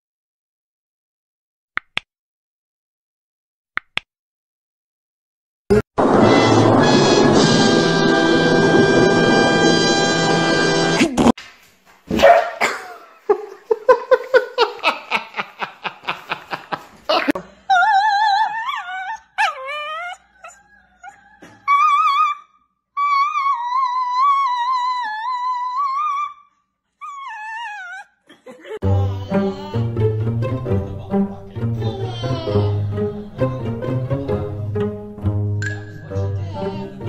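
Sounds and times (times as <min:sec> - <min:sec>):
dog howling: 0:17.7 - 0:28.1
dog yipping and grunting: 0:17.7 - 0:28.3.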